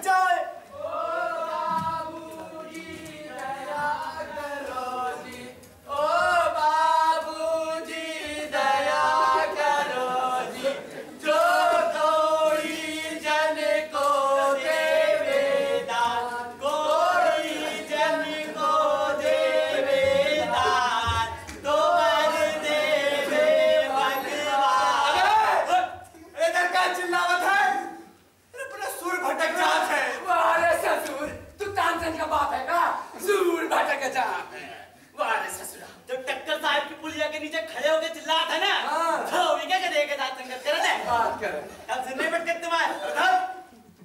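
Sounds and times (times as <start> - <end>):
group singing chant-like song: 0.7 - 28.2, 29.1 - 35.0.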